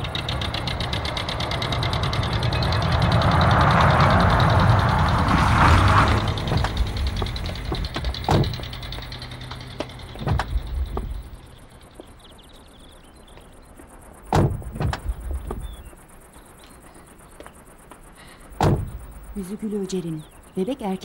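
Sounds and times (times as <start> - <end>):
car engine running: 0.0 - 16.8, 17.5 - 19.6
car door opening: 5.1 - 11.4, 14.3 - 15.8, 18.6 - 19.3
car door shutting thumps: 6.4 - 9.1, 10.1 - 11.3, 14.3 - 15.8, 18.6 - 19.2.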